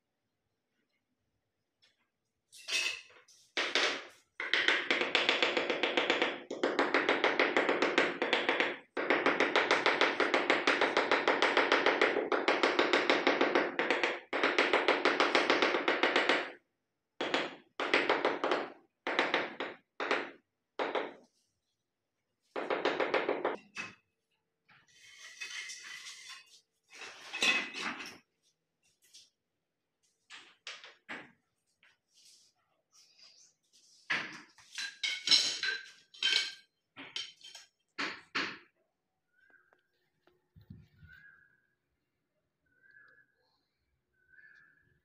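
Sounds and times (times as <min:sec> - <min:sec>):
tile strips being tapped: 0:03.6 - 0:16.6.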